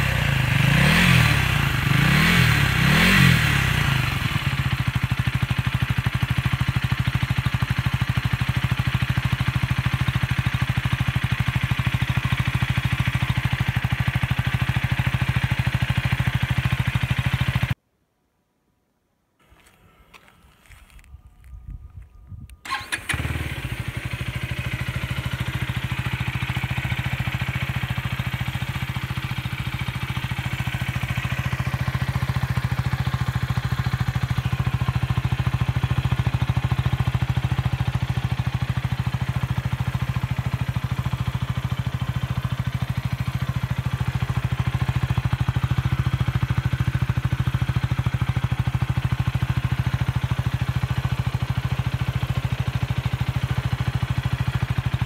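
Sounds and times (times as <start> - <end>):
motorcycle engine idling: 0.0 - 17.8, 22.6 - 55.0.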